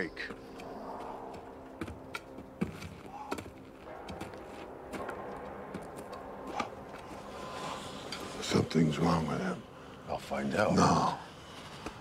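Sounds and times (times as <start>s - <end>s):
footsteps on muddy ground: 0.1s - 7.9s.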